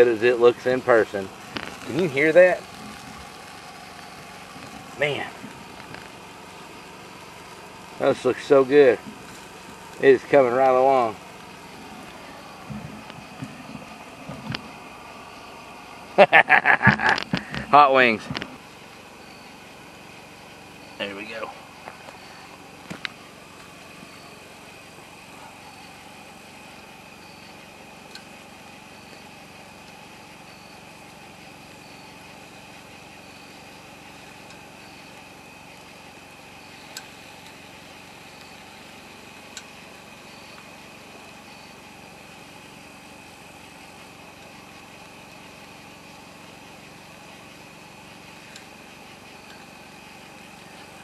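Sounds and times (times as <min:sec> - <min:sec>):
chicken wings sizzling on grill: 0:00.0 - 0:19.1
low mechanical hum: 0:00.0 - 0:51.0
faint high chirp: 0:19.2 - 0:19.7, 0:24.0 - 0:24.5.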